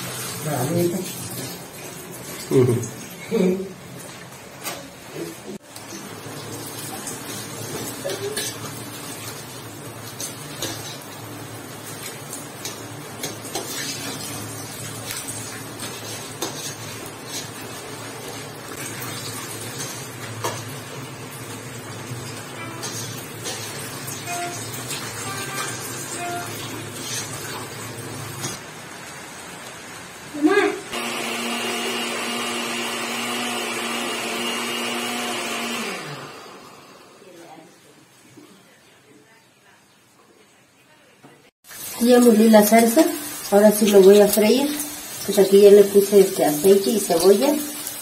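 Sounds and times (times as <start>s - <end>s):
utensils clinking against dishes: 7.7s - 8.8s, 22.6s - 27.4s
blender motor running: 30.9s - 37.2s.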